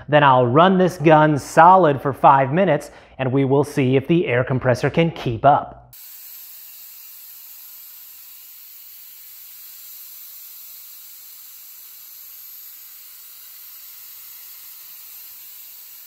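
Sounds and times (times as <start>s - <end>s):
spray gun air hiss: 6.0s - 16.0s.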